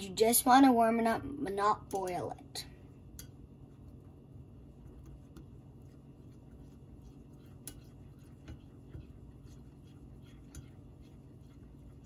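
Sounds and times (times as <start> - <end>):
low steady hum: 0.0 - 12.0
whisk scraping a saucepan: 3.7 - 12.0.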